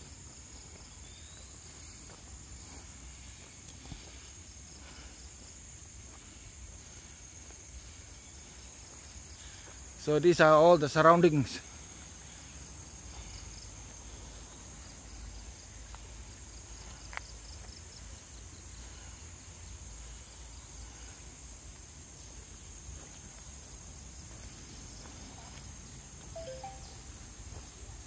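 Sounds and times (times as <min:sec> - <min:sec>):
high-pitched insect drone: 0:26.4 - 0:27.7.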